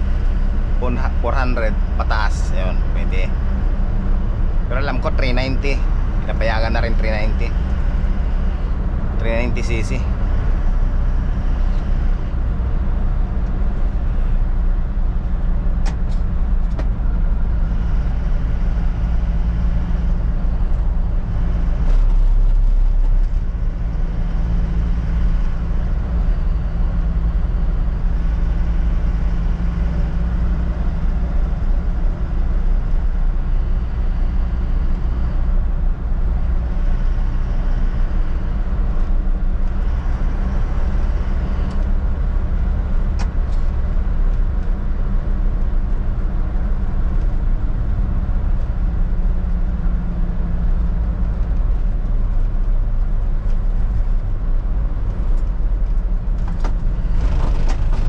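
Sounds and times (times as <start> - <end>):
diesel truck engine drone: 0.0 - 58.0.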